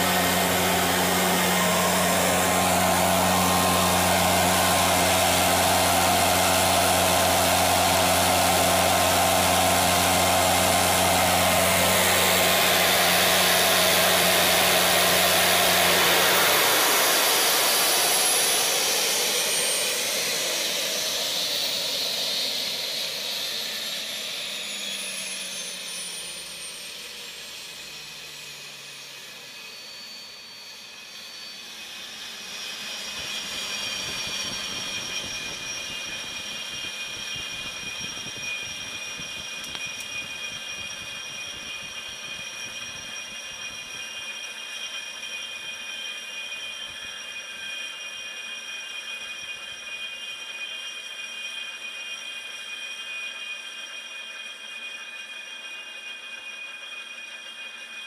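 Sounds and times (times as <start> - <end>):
compressor hum: 0.0 - 20.8
gas turbine winding down: 0.0 - 48.0.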